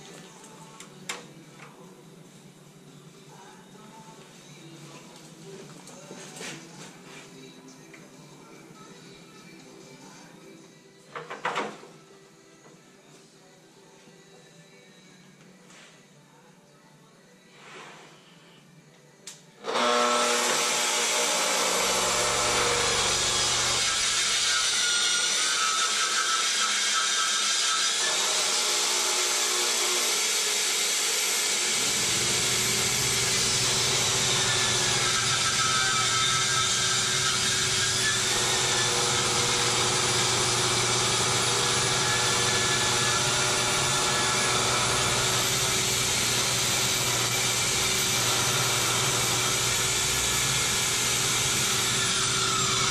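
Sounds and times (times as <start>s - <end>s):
vacuum running: 19.6s - 25.1s, 29.2s - 52.9s
circular saw cutting wood: 19.6s - 52.9s.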